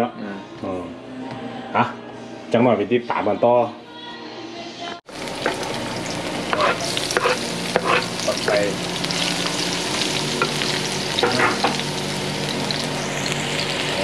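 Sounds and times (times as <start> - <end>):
meat sizzling in a hot pan: 5.1 - 14.0
spatula scraping and knocking pan: 6.5 - 8.6.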